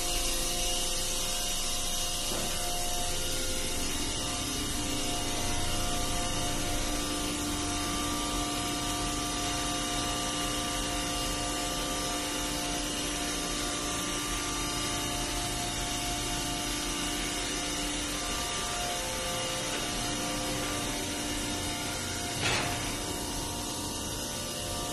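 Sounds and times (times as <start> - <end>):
electric pumps humming: 0.0 - 24.9.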